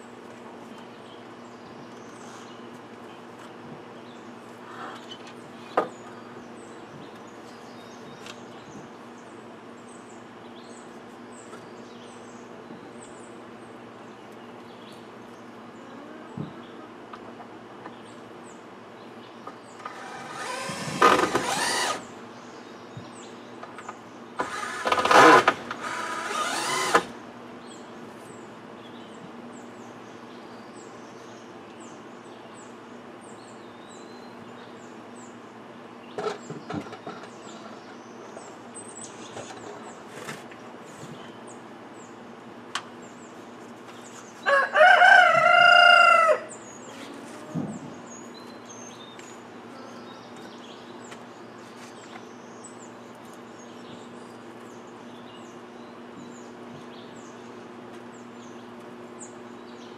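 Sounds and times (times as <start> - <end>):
rooster crowing: 44.4 - 46.6.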